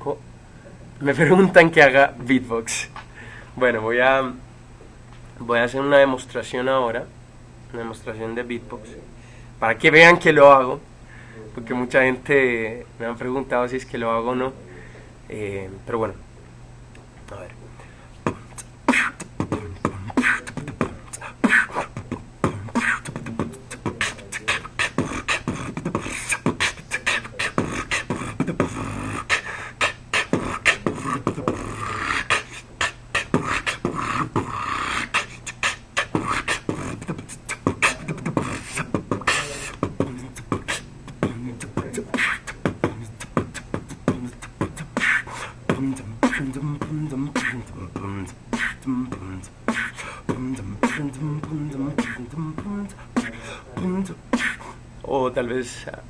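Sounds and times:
man beatboxing: 0:18.2 - 0:54.8.

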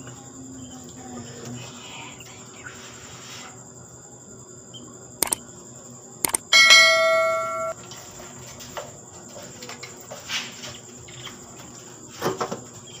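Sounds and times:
bell-like notification chime: 0:06.6 - 0:07.8.

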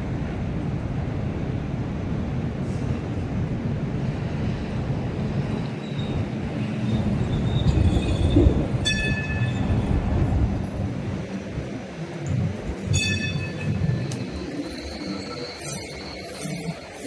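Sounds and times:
light rail vehicle rumbling: 0:00.0 - 0:17.0
wavering high squeal: 0:12.9 - 0:17.0.

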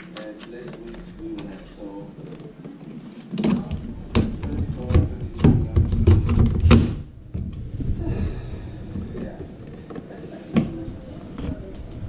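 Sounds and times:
hard plastic clicks and knocks: 0:03.4 - 0:07.6.

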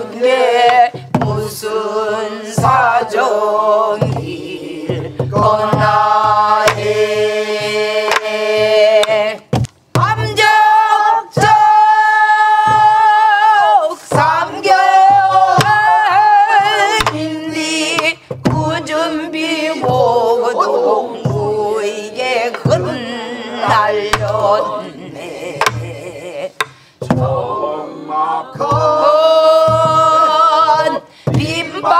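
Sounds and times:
barrel drums beating: 0:00.0 - 0:27.7, 0:28.5 - 0:31.9
group singing folk song: 0:00.0 - 0:31.9
woman singing with vibrato: 0:00.0 - 0:31.9.

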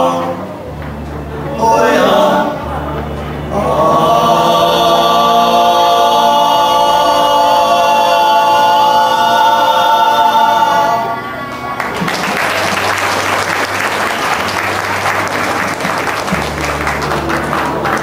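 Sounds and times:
male group singing a cappella: 0:00.0 - 0:00.4, 0:01.5 - 0:11.2
audience applause: 0:11.4 - 0:18.0.

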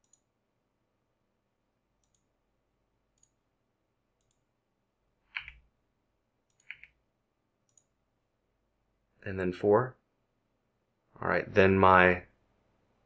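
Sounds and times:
computer mouse and keyboard clicks: 0:05.3 - 0:05.6, 0:06.5 - 0:07.0.

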